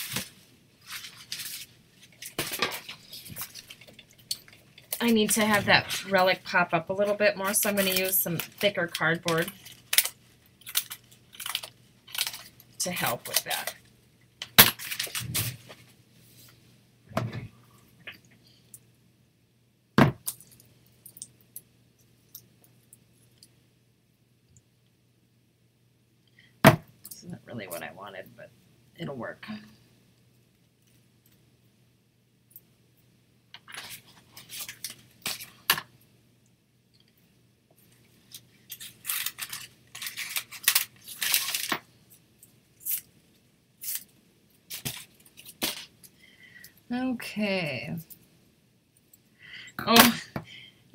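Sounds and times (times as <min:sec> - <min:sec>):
craft materials rustling: 0:00.0 - 0:13.8, 0:14.7 - 0:16.6, 0:37.8 - 0:41.9.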